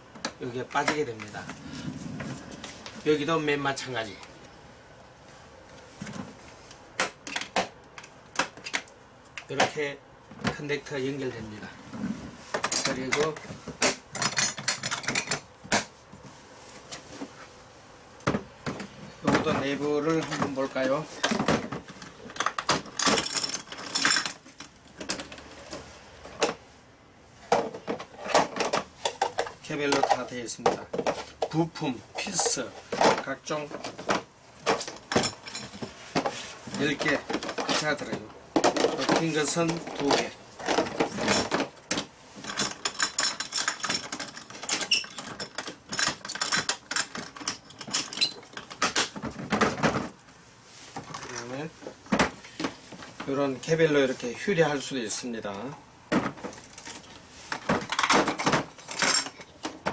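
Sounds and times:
plastic bins rattling and clicking: 0:12.5 - 0:15.9, 0:18.3 - 0:26.6, 0:27.5 - 0:50.2, 0:55.5 - 0:59.9
hard plastic clattering: 0:32.2 - 0:50.2, 0:56.1 - 0:59.9.

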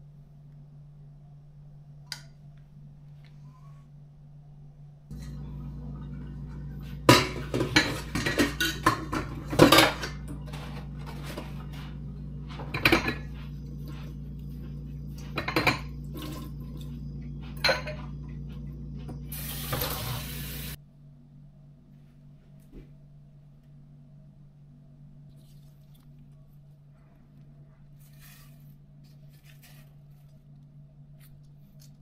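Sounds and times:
low hum: 0:00.0 - 0:32.0
dishes clinking in a steel sink: 0:05.1 - 0:11.6, 0:12.5 - 0:13.4, 0:15.2 - 0:16.6, 0:17.6 - 0:18.2
faucet sprayer running water: 0:19.3 - 0:20.8.

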